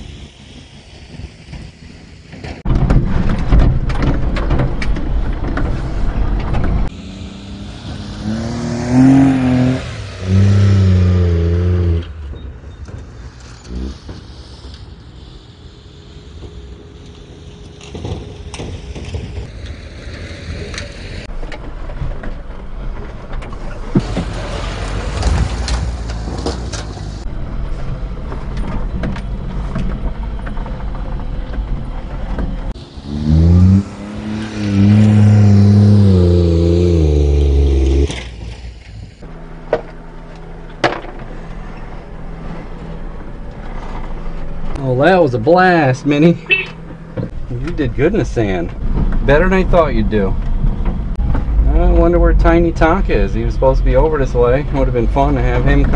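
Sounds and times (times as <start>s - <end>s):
truck engine revving under load: 6.1s - 12.4s, 13.0s - 16.6s, 23.9s - 39.4s.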